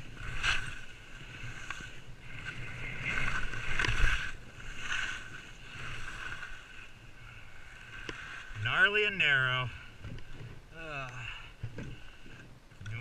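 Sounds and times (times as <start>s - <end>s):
skis hissing through snow: 0.0s - 8.6s
wind rumble on microphone: 0.0s - 8.9s.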